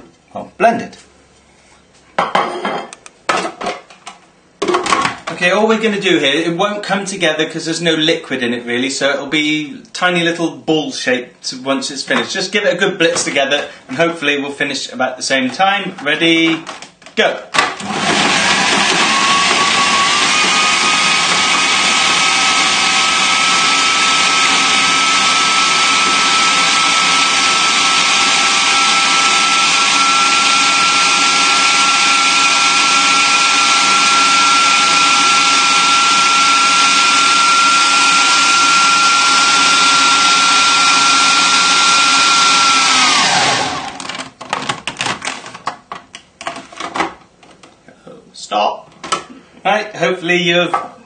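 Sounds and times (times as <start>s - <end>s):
food processor motor whining: 17.7s - 44.3s.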